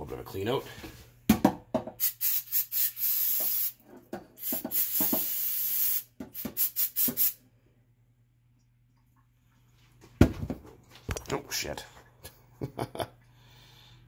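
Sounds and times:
spray cleaner hissing: 2.0 - 3.8, 4.4 - 7.4.

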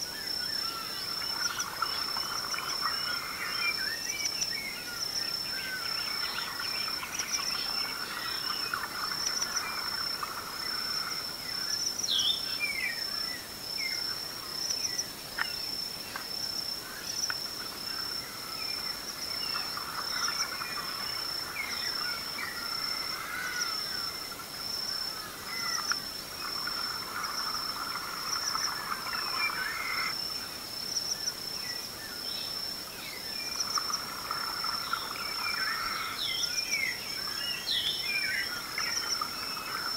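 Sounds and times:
high-pitched insect trill: 0.0 - 39.9
birds calling: 16.9 - 30.2.

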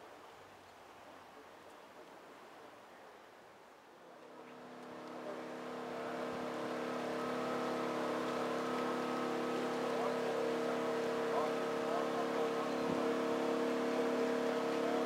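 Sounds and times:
engine running steadily: 4.0 - 15.0.

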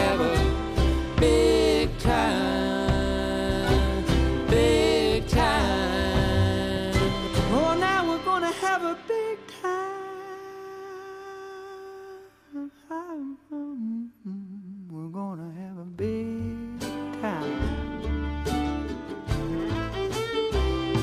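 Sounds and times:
fiddle and guitar tune: 0.0 - 11.2, 16.0 - 21.0.

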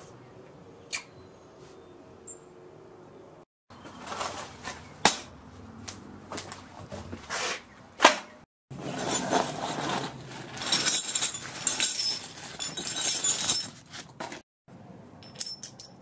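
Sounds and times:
metal hardware clinking and jangling: 10.5 - 14.2, 15.2 - 16.0.

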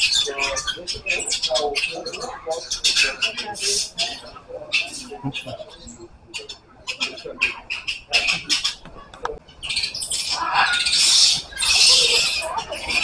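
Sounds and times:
harsh animal squawks: 9.7 - 13.0.

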